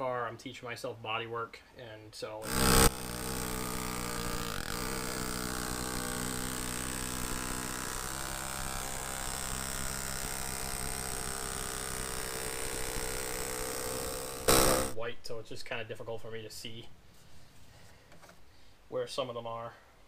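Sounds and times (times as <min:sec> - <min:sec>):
air hammer chiseling sheet metal: 0:02.4 - 0:15.0.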